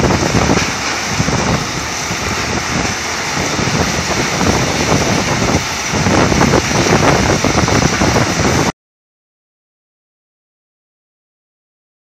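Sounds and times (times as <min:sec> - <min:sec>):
diesel engine running: 0:00.0 - 0:08.7.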